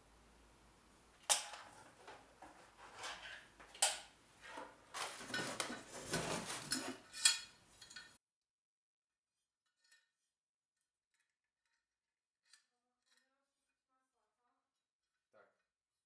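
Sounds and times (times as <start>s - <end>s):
cardboard rustling and scraping: 1.7s - 3.6s, 4.4s - 7.1s.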